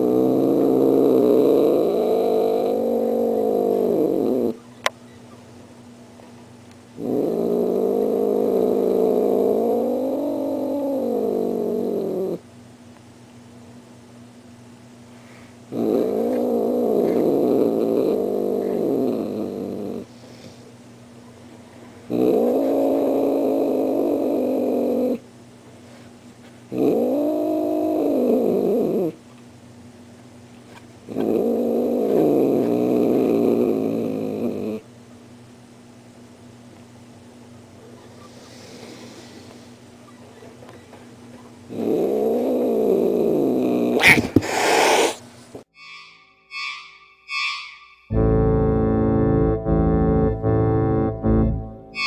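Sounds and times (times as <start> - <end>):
cat growling: 0.0 - 4.6, 7.0 - 12.4, 15.7 - 20.1, 22.1 - 25.2, 26.7 - 29.2, 31.1 - 34.8, 41.7 - 45.2.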